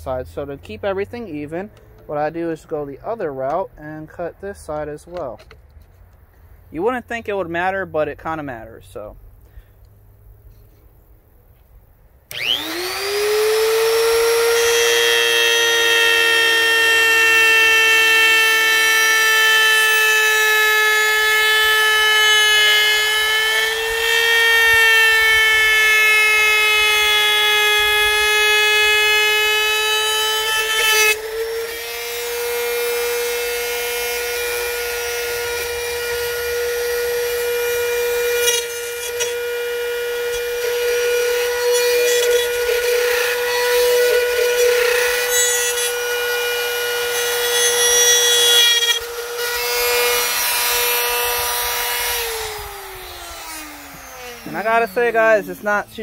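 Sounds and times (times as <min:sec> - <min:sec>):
trim router whining: 0:12.3 - 0:56.0.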